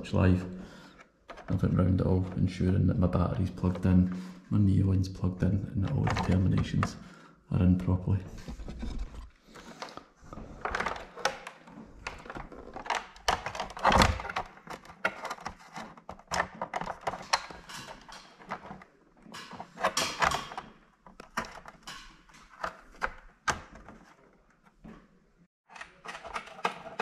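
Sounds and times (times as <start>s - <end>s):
plastic clicks knocks and scrapes: 0.9s - 1.6s, 8.4s - 25.0s, 25.7s - 27.0s.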